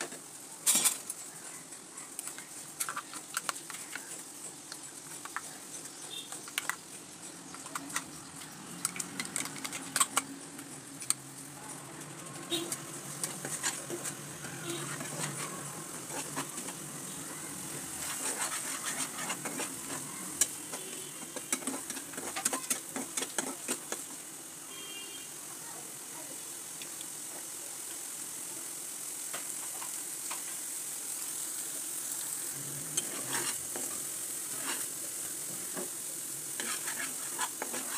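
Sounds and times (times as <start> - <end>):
oil sizzling: 0.0 - 37.9
metal spatula scraping a wok: 12.5 - 24.0, 32.8 - 37.9.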